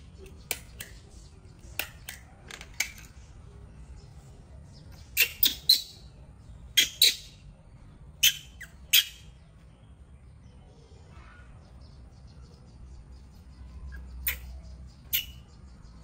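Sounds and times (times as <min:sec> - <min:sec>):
baby monkey squeaking: 0:05.0 - 0:06.1, 0:06.7 - 0:07.4, 0:08.2 - 0:09.3, 0:13.9 - 0:15.5.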